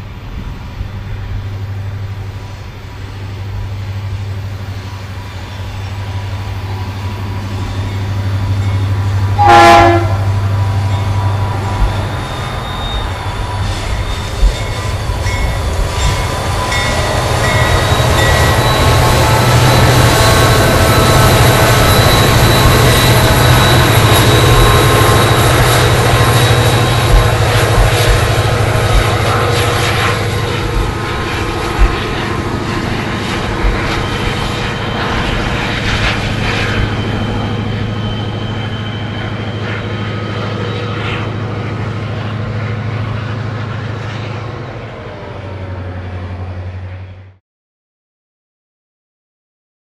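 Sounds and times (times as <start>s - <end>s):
diesel locomotive engine drone: 0.0s - 47.4s
high steady tones: 4.8s - 40.8s.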